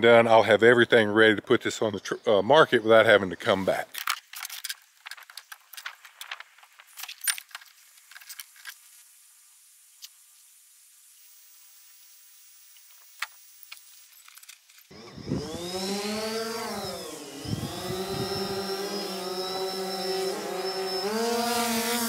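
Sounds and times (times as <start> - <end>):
drone propeller hum: 14.9 - 22.0.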